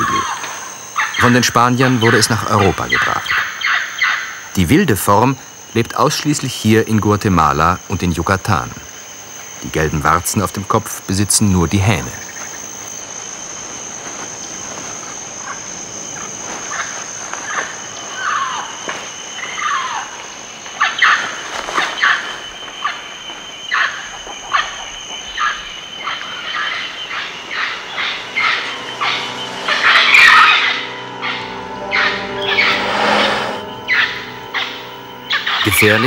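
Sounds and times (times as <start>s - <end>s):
falling bird calls: 0.0s - 5.2s, 15.4s - 36.0s
high-pitched insect drone: 0.0s - 36.0s.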